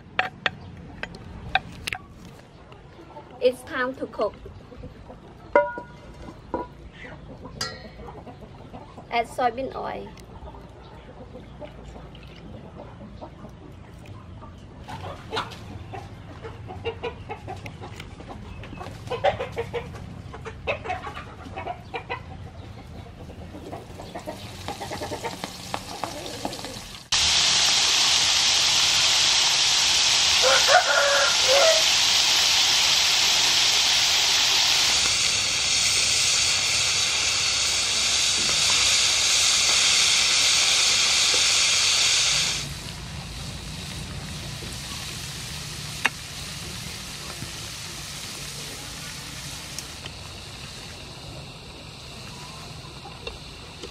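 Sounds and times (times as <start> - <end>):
chickens clucking: 0.0 - 27.2, 29.1 - 53.9
food deep-frying in hot oil: 23.8 - 53.9.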